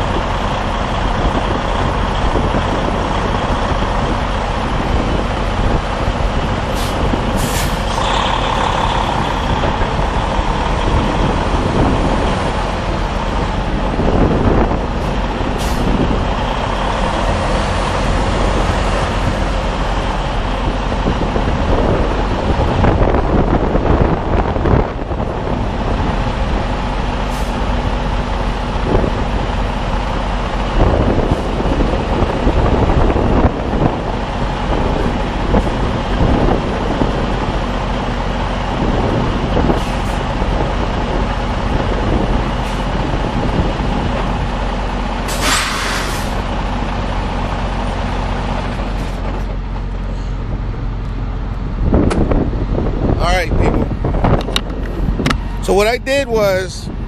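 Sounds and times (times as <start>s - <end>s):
diesel truck engine running: 0.0s - 57.0s
air brakes hissing: 6.7s - 8.0s, 15.0s - 15.9s, 45.3s - 46.4s.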